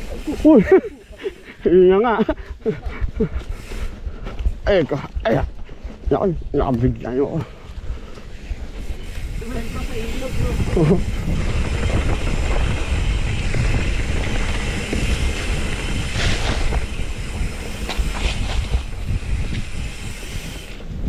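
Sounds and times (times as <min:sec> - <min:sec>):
bike knocking and rattling: 0:05.3 - 0:21.0
tyres rumbling over dirt: 0:08.2 - 0:20.6.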